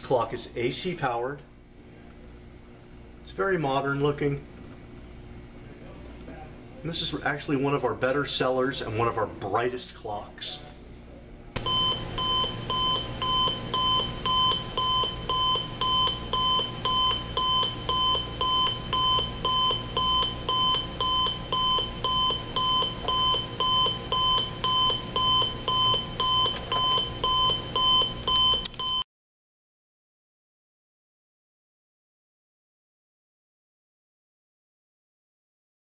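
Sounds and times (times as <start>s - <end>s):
clock radio buzzer alarm beeping: 11.6s - 29.0s.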